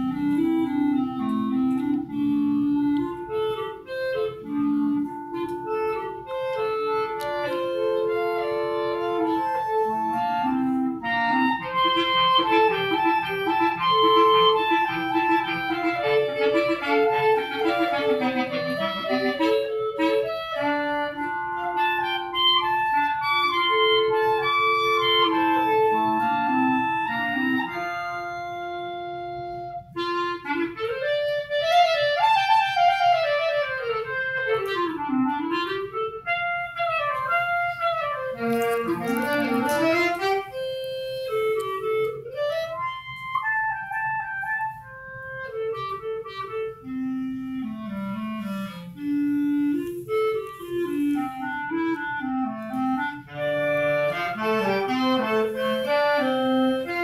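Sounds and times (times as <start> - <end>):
clarinet trio playing: 0.0 - 57.0.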